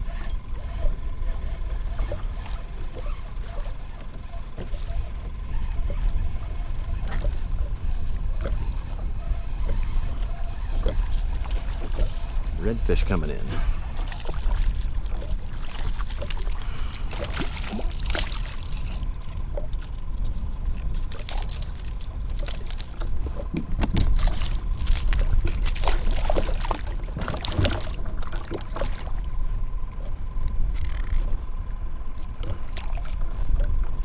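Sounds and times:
water splashing against kayak: 0.5s - 34.0s
sharp splashes and knocks: 23.6s - 29.1s.

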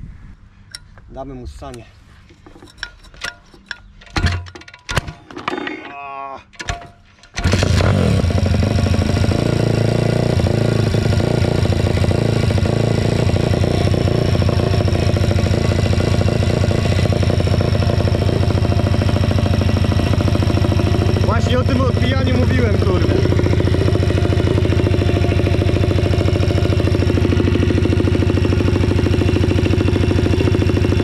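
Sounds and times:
motorcycle engine running: 7.4s - 31.0s.

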